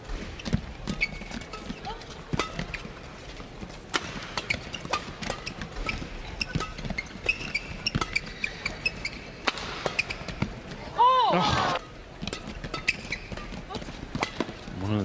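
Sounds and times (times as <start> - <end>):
court shoes squeaking: 0.0 - 15.0
rackets striking shuttlecock: 0.2 - 2.8, 3.9 - 10.6, 12.2 - 14.7.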